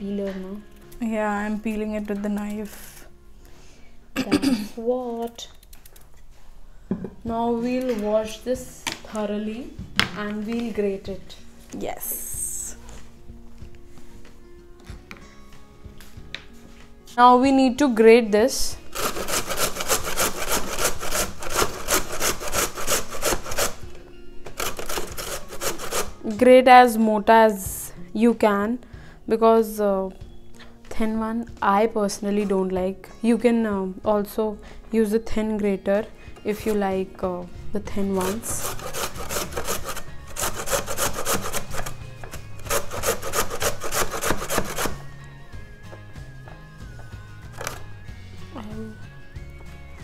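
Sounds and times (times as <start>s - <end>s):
background music: 0.0s - 50.0s
beetroot grating on a grater: 18.9s - 23.8s, 24.6s - 26.2s, 38.1s - 45.0s.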